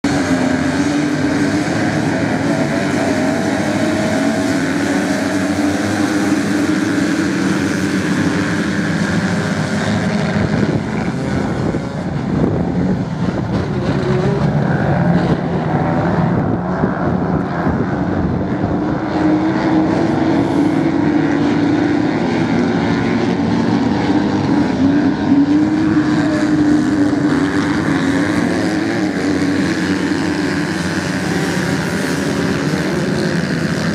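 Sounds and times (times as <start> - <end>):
motocross bike engines droning: 0.0 - 33.9.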